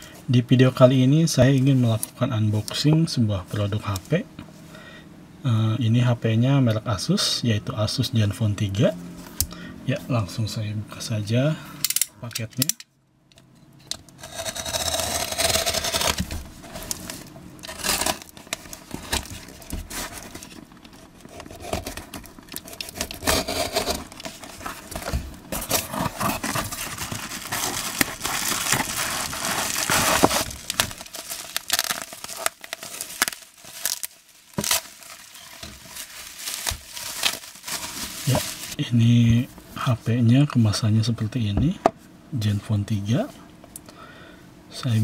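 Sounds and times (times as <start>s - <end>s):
box-cutter slitting packing tape: 14.2s - 20.5s, 21.3s - 38.6s
bubble wrap crinkling: 14.2s - 38.8s
cardboard and tape tearing: 14.2s - 38.8s.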